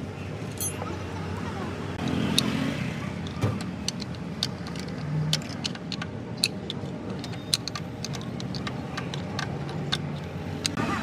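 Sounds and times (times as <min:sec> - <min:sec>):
metal hand tools clinking: 0:00.5 - 0:00.8.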